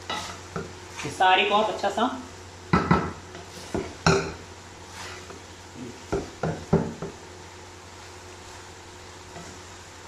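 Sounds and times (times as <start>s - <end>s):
wooden spatula knocking on pot: 6.1s - 7.2s.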